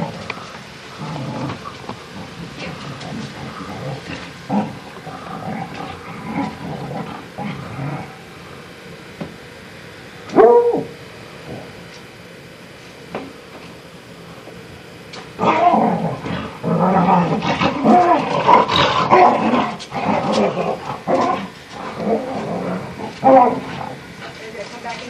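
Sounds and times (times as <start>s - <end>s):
dogs growling: 0.0s - 8.6s, 15.4s - 24.4s.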